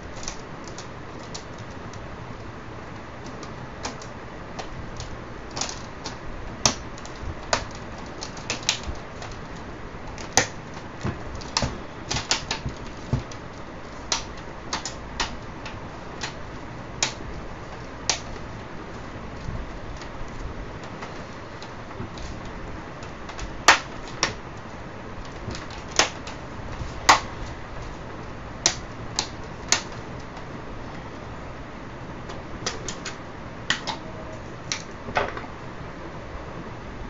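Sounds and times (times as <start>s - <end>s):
plastic clicks and snaps: 3.2s - 16.4s, 17.0s - 18.5s, 25.2s - 28.0s, 28.6s - 30.5s, 32.3s - 34.1s, 34.7s - 35.5s.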